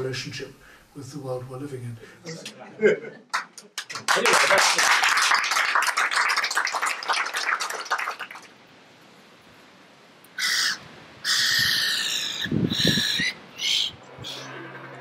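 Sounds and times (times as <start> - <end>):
applause: 3.3 - 8.6
gulls calling: 10.3 - 15.0.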